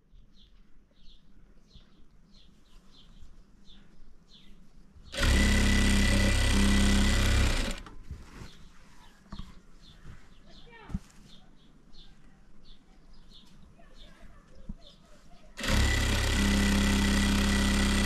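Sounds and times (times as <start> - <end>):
sewing machine running: 5.1 - 7.9, 15.6 - 18.0.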